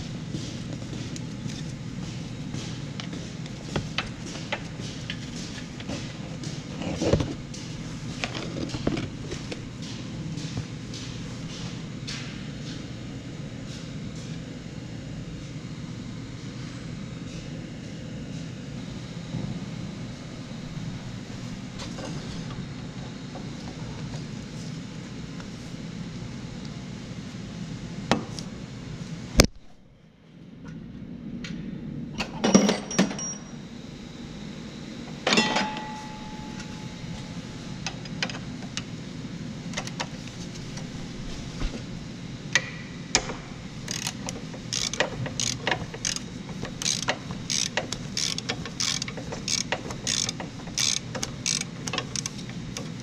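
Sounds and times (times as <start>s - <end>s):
low hum: 33.5s - 51.0s
ratchet wrench clicking: 43.9s - 52.9s.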